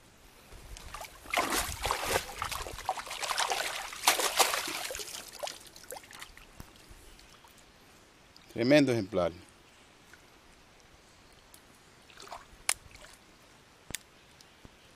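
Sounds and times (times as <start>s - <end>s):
hands splashing in shallow water: 0.8s - 6.4s.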